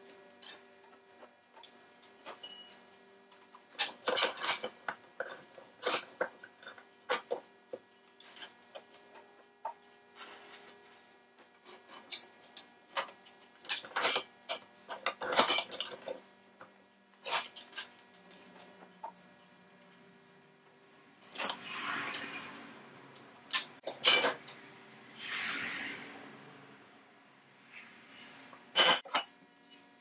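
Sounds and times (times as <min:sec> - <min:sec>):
metal lamp clinking and scraping: 0:00.0 - 0:02.8, 0:03.6 - 0:07.4, 0:11.6 - 0:16.2, 0:17.2 - 0:20.0, 0:21.2 - 0:22.5, 0:23.1 - 0:24.6, 0:28.1 - 0:29.9.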